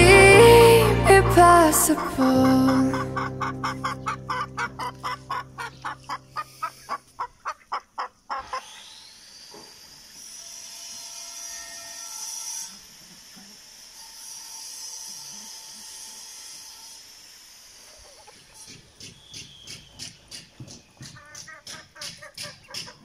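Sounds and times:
held low music chord: 0:00.0 - 0:06.6.

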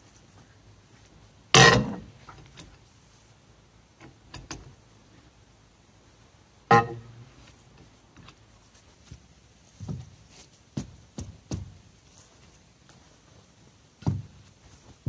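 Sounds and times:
tool knocks and clunks: 0:06.7 - 0:07.2, 0:14.0 - 0:14.4.

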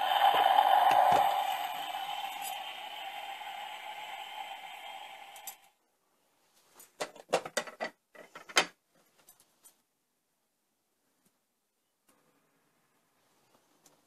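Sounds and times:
toy wheel gearing whirring: 0:00.0 - 0:05.7.

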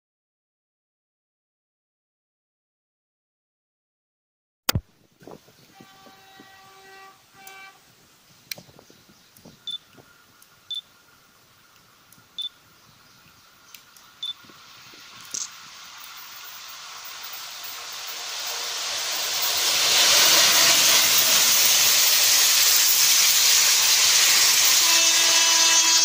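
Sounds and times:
distant train running: 0:05.6 - 0:26.0
distant train horn: 0:05.7 - 0:08.0, 0:24.4 - 0:26.0.

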